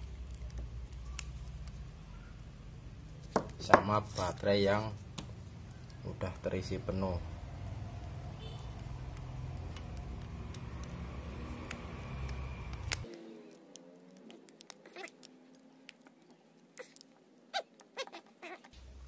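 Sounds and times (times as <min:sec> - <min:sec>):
clicks and rustles of rubber band: 0:00.0 - 0:02.0, 0:11.6 - 0:18.8.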